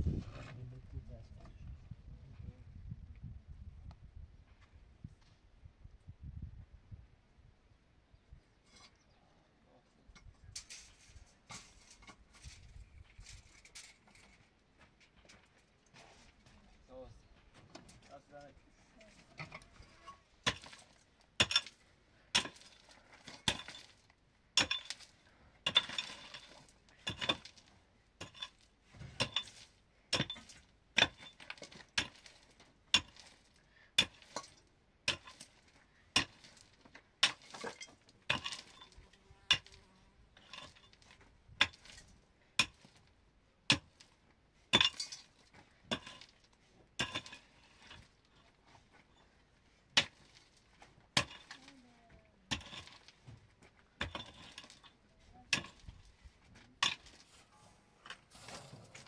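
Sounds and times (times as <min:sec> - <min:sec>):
trowel clinking on bricks: 0:19.4 - 0:43.0, 0:43.7 - 0:48.3, 0:49.9 - 0:51.6, 0:52.5 - 0:53.3, 0:54.0 - 0:57.3.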